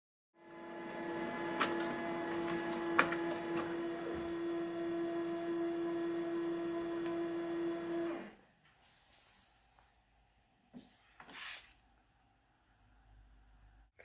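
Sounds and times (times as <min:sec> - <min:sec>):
printer motor hum: 0:00.4 - 0:08.4.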